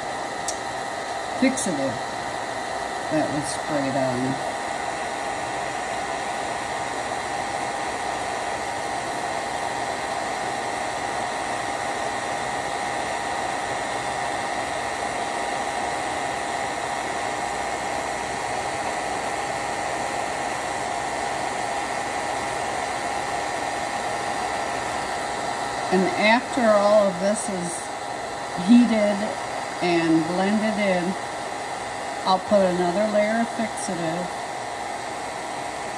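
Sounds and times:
hair dryer blowing: 0.0 - 35.9.

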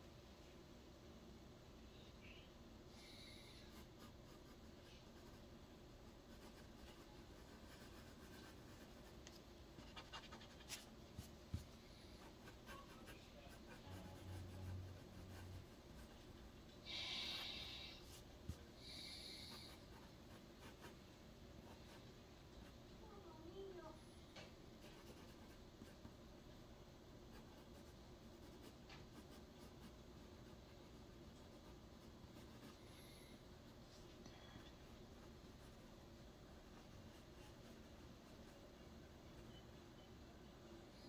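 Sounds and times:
pen scratching on paper: 6.0 - 16.3, 19.2 - 21.0, 24.8 - 26.1, 27.3 - 32.9, 36.6 - 39.6.

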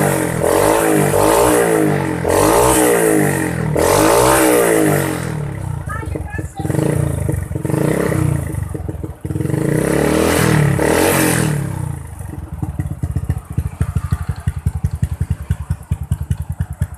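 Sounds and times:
motorcycle engine revving and idling: 0.0 - 16.9.

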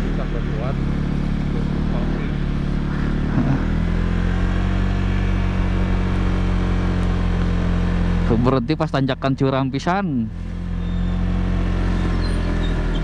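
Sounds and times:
motorcycle engine running: 0.0 - 13.0
wind and road noise: 0.8 - 8.4.

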